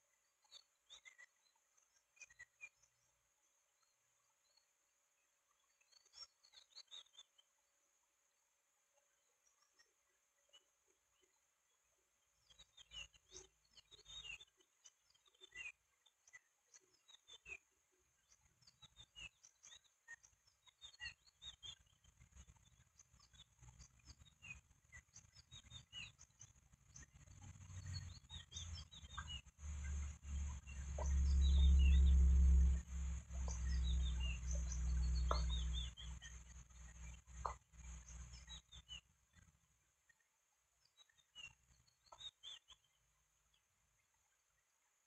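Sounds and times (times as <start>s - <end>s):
high bird chirps: 18.7s - 39.5s.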